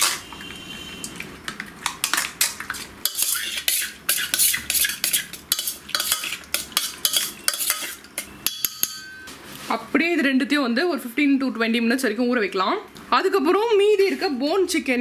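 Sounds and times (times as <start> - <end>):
metal spoon scraping steel bowl: 0.0 - 0.4, 2.0 - 9.3.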